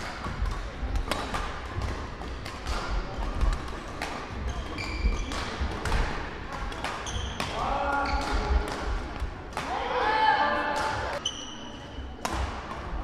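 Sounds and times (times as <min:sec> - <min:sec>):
shoe squeaks: 0:04.5 - 0:05.3, 0:07.0 - 0:07.4, 0:11.2 - 0:12.1.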